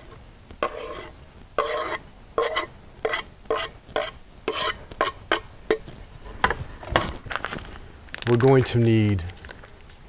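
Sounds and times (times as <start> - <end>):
knife scraping on wooden board: 0.0 - 5.5.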